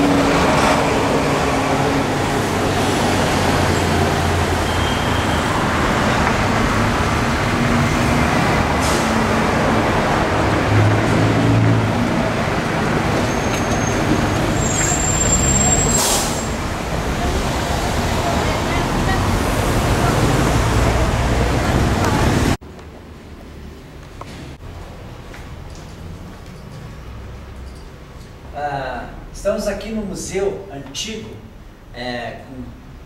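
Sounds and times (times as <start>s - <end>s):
street traffic din: 0.0s - 33.0s
thin high squeal: 14.6s - 16.6s.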